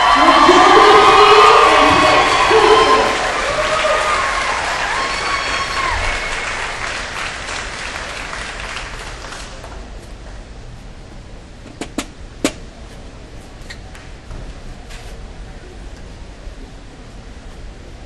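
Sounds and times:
audience applause: 0.0 - 9.8.

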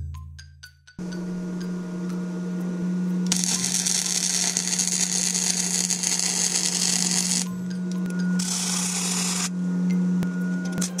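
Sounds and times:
welder hum: 1.0 - 11.0
welding arc crackling: 3.2 - 9.6.

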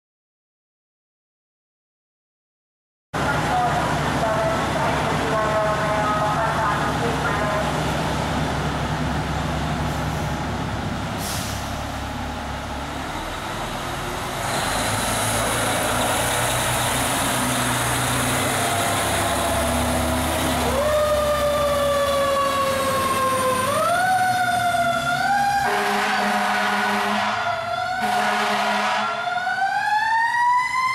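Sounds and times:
fire engine diesel engine: 3.2 - 30.9
air hiss: 11.2 - 11.8
siren wailing: 18.6 - 30.9.

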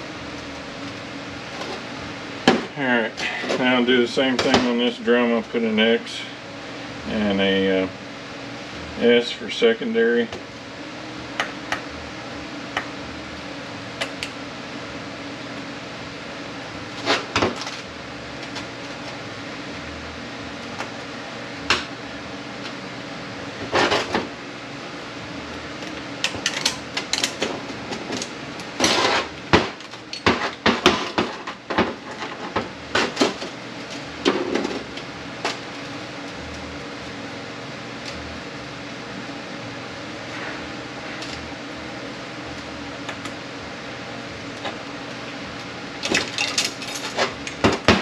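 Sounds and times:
metal parts and tools clinking: 46.1 - 47.3.

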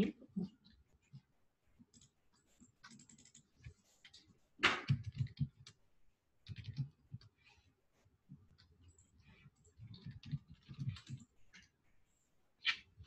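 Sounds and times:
keyboard typing: 1.9 - 5.8, 6.4 - 7.4, 8.6 - 11.7.

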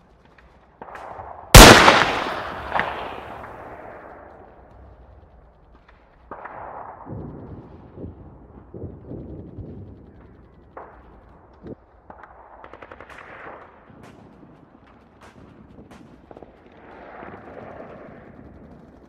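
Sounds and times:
machine-gun fire: 1.6 - 3.8
single gunshots: 1.6 - 3.9.

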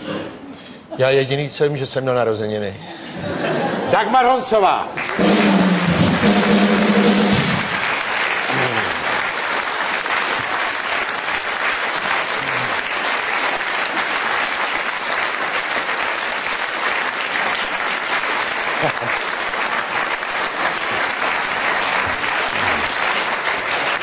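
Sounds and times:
audience applauding: 4.3 - 24.0
band music with drums: 5.0 - 8.8.

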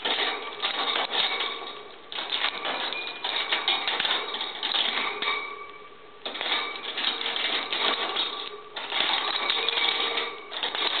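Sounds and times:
wood pieces clicking and rattling: 6.3 - 11.0.

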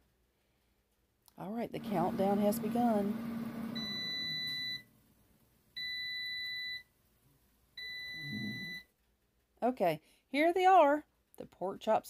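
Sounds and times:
air fryer electronic beeps: 2.0 - 4.8, 5.8 - 6.8, 7.8 - 8.8.

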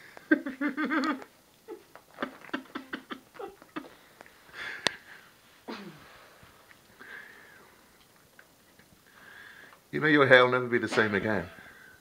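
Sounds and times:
person giggling: 0.1 - 4.0.

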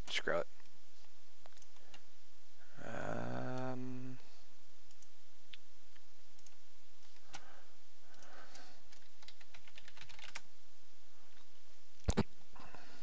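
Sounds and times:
typing on computer keyboard: 8.2 - 10.4
sharp keyboard clicks: 8.2 - 10.5.

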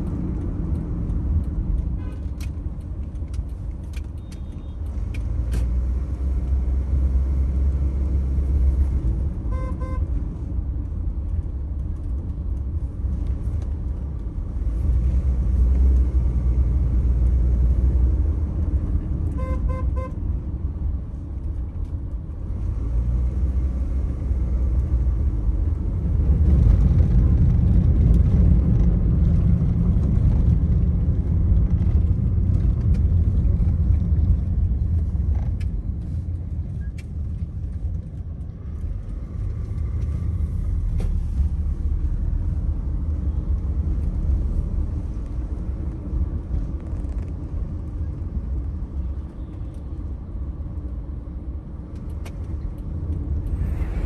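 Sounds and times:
road traffic rumble: 0.0 - 54.0
car horn toots: 9.5 - 10.1, 19.4 - 20.2.

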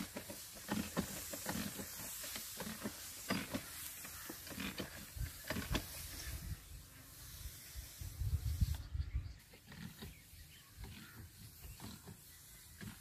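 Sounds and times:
hand pump knocking and creaking: 0.0 - 5.9
spray hissing from nozzle: 0.0 - 13.0.

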